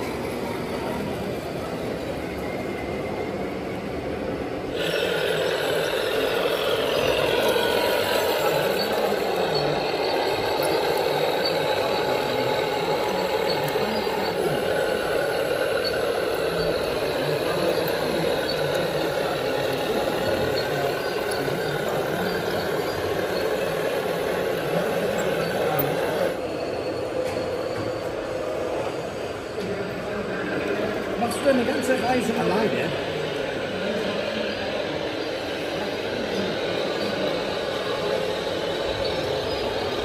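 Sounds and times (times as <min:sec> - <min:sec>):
steady background noise: 0:00.0 - 0:40.0
model truck motor whining: 0:04.6 - 0:26.4.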